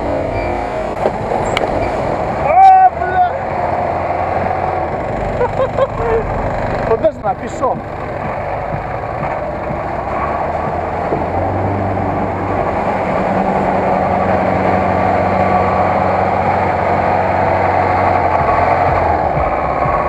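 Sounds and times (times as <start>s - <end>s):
truck engine droning under load: 0.0s - 20.0s.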